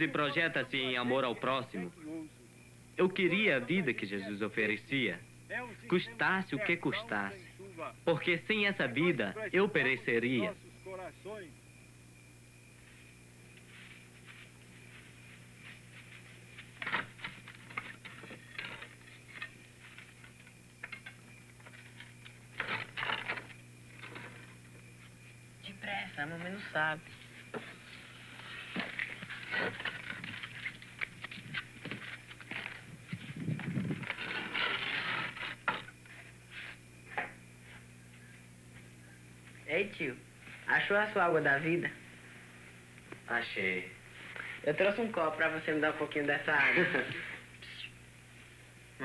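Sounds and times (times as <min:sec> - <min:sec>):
steady low hum: 0:00.0 - 0:49.0
scuffling and rustling: 0:12.8 - 0:20.5.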